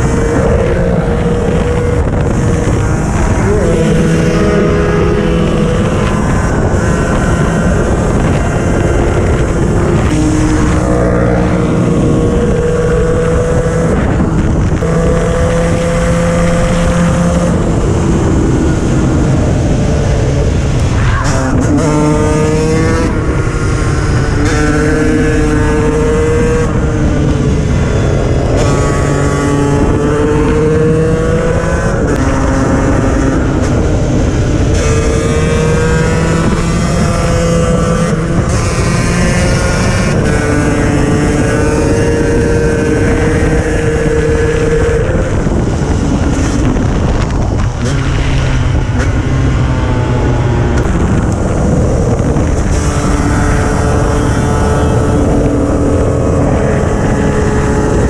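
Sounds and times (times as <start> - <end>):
two-stroke engine accelerating: 0.0 - 58.0
wind rush on microphone: 0.0 - 58.0.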